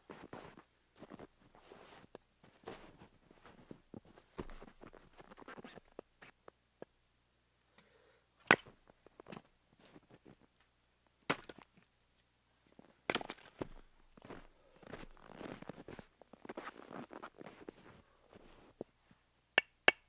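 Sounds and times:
footsteps crunching through snow: 0:00.1 - 0:05.7, 0:13.1 - 0:18.8.

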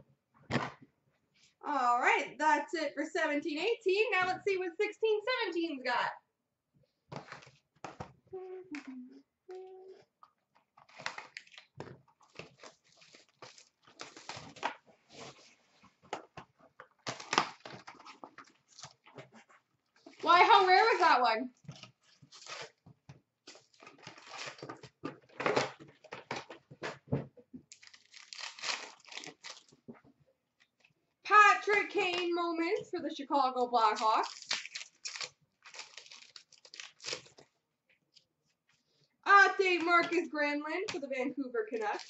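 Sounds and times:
packaging crinkling and tearing: 0:10.8 - 0:15.6, 0:16.9 - 0:19.2, 0:21.7 - 0:22.8, 0:23.4 - 0:25.8, 0:27.7 - 0:29.8, 0:34.0 - 0:37.6, 0:41.8 - 0:42.0.

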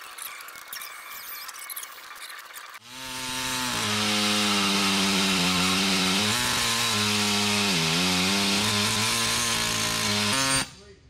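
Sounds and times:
grinder motor whining: 0:02.8 - 0:10.7.

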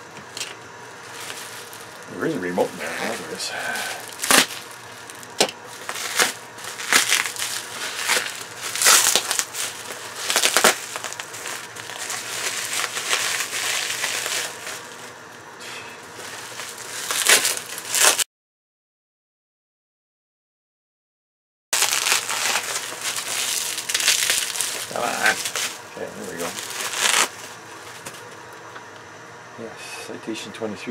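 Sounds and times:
bubble wrap crackling: 0:00.3 - 0:15.3, 0:15.9 - 0:18.3, 0:21.8 - 0:28.6.

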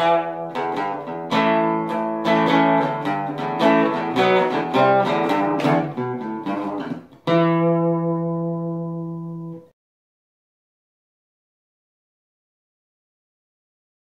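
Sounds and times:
plucked guitar notes: 0:00.0 - 0:09.7
ringing guitar chord: 0:00.0 - 0:09.7.

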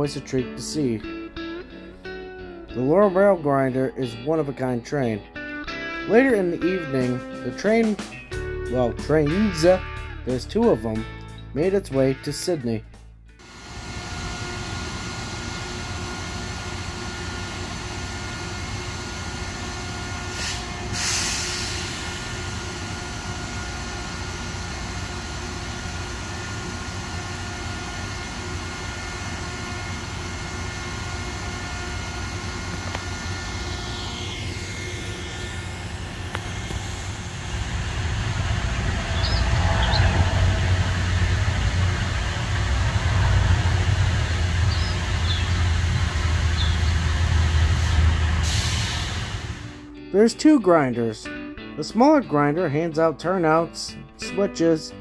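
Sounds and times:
diesel engines idling: 0:13.4 - 0:49.8
deep engine rumble: 0:14.0 - 0:49.8
short hiss: 0:20.4 - 0:22.0.

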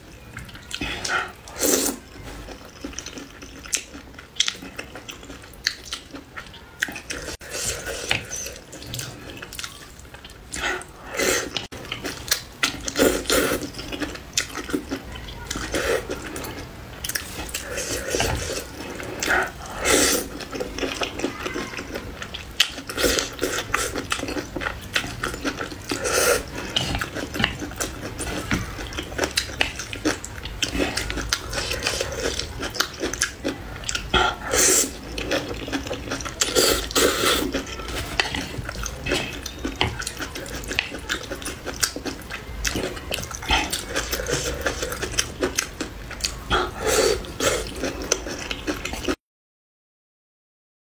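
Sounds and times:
wet chewing: 0:00.2 - 0:49.2
slurping noodles: 0:17.2 - 0:21.0, 0:34.2 - 0:39.4, 0:42.7 - 0:45.2, 0:46.5 - 0:48.1.

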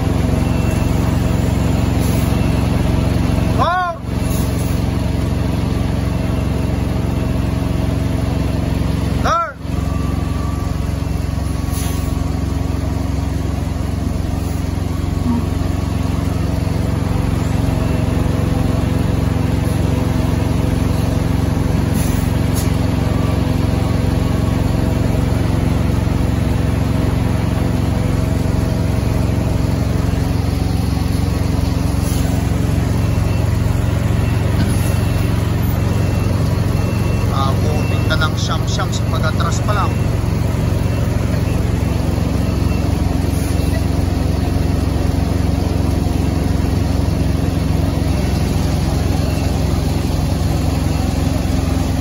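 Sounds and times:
truck engines idling: 0:00.0 - 0:52.0.

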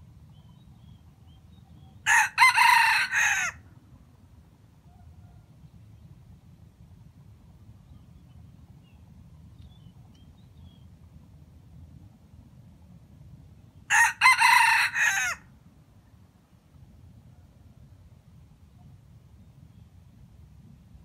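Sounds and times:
rooster crowing: 0:02.0 - 0:03.6, 0:13.9 - 0:15.4.

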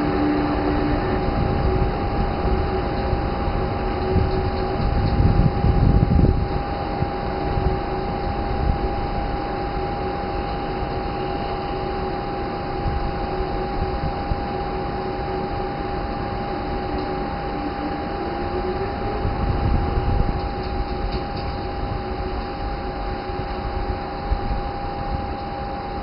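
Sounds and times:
electric locomotive humming and whining: 0:00.0 - 0:26.0.

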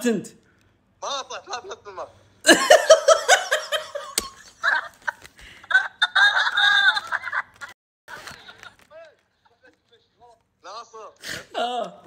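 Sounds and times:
person laughing heartily: 0:02.4 - 0:08.9.

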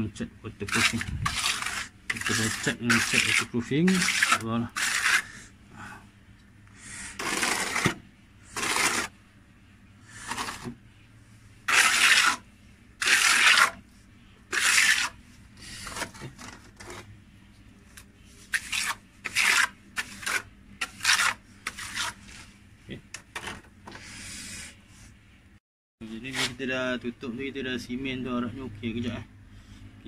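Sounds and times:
steel trowel scraping concrete: 0:00.6 - 0:05.5, 0:07.1 - 0:09.2, 0:10.1 - 0:10.7, 0:11.7 - 0:13.8, 0:14.5 - 0:17.0, 0:18.4 - 0:22.5.

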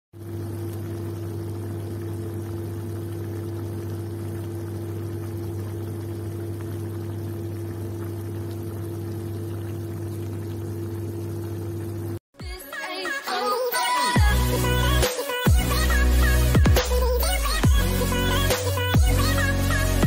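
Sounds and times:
pot boiling: 0:00.2 - 0:12.2
music: 0:12.4 - 0:20.0.

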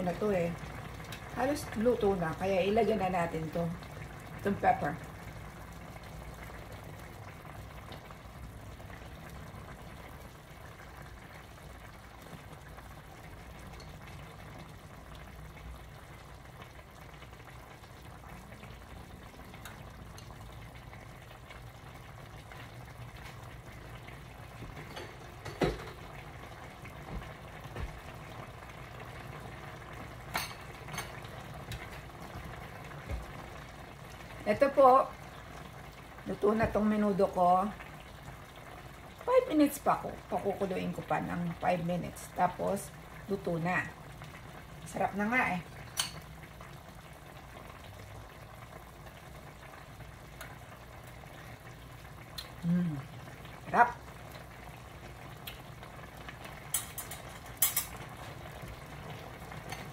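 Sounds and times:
stew bubbling in a pot: 0:00.0 - 0:59.9.

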